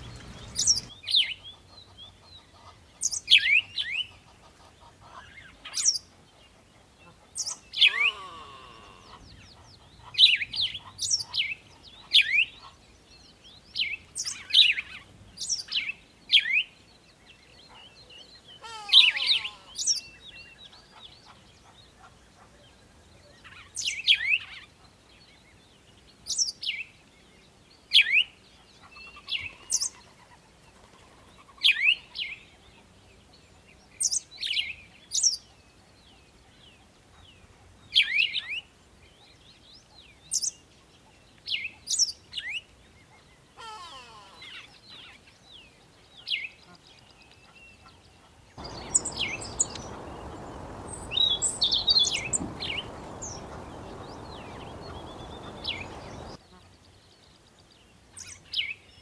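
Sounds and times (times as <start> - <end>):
sparrows chirping: 0.0 - 6.6, 44.5 - 56.4.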